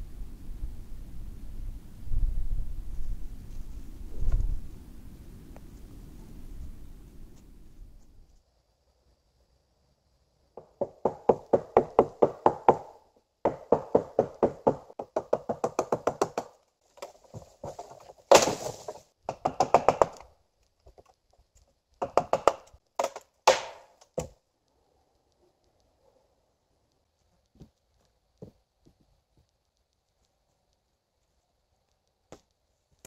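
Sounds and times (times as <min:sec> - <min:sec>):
rapid sharp knocks: 0:10.6 - 0:16.6, 0:17.7 - 0:20.2, 0:22.0 - 0:24.3.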